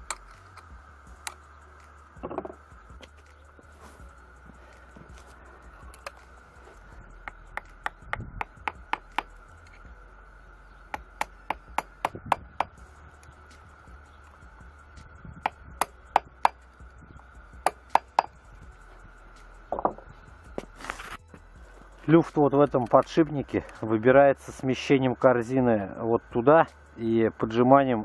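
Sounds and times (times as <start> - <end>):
hammer tapping on metal: 7.2 - 9.3, 15.4 - 16.6, 17.6 - 18.4.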